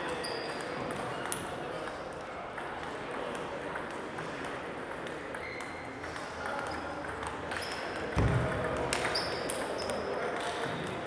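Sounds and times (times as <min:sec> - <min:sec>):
murmur of voices: 0:00.0 - 0:11.0
ping-pong balls clicking: 0:00.2 - 0:11.0
brief high squeaks: 0:05.4 - 0:05.8.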